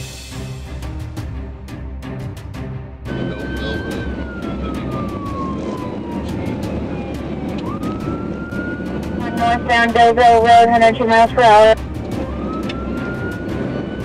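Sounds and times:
road and engine noise: 0.0 - 14.0
police siren wailing: 3.1 - 14.0.

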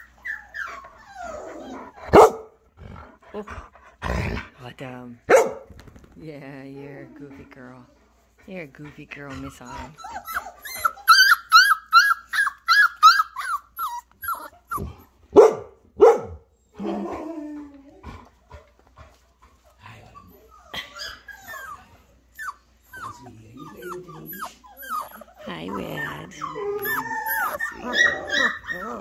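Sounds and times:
puppy yapping: 10.0 - 16.4, 22.4 - 29.0.

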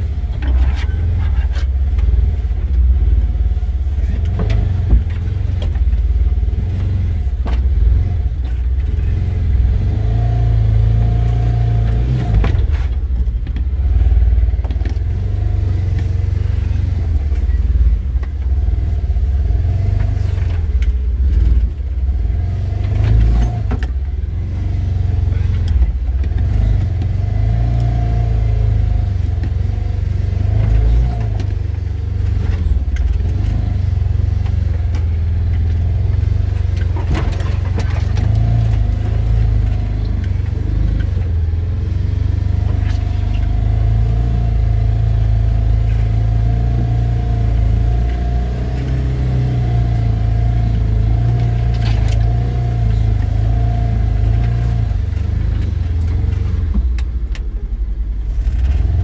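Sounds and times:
utility vehicle engine running: 0.0 - 59.0
knocks and rattles: 3.9 - 9.1.

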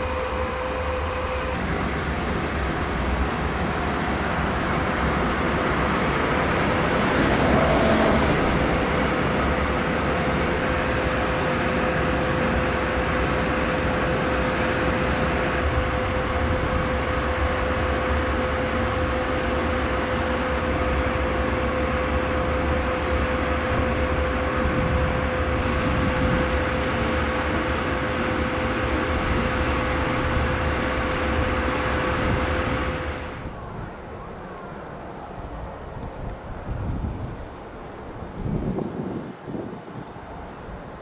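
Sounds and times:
locomotive cooling blowers whirring: 0.0 - 41.0.

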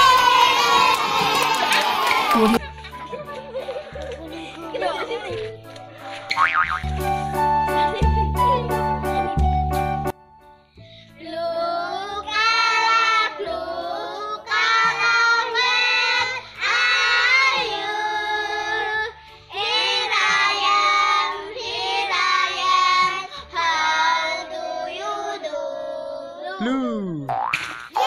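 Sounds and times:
children singing: 11.3 - 26.6.

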